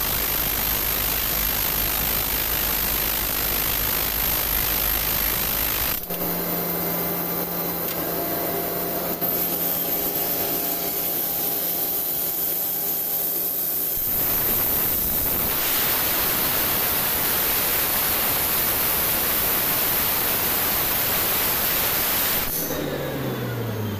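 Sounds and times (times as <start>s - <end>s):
drilling rig boring: 0.0s - 17.4s
machine hum with low drone: 0.0s - 19.6s
loud rushing hiss: 13.3s - 22.7s.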